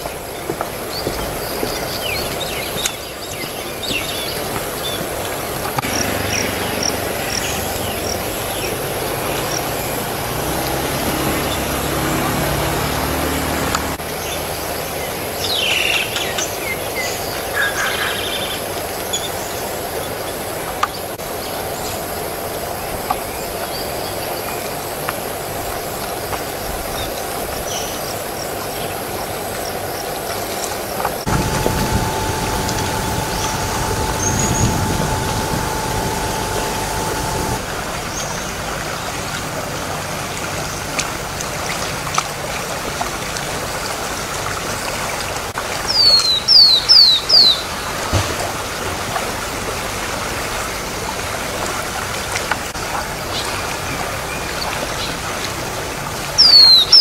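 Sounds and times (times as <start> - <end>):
outdoor background noise: 0.0 - 57.0
low rumble: 31.2 - 38.0
steady hum: 31.2 - 38.1
bird calling: 31.3 - 37.6.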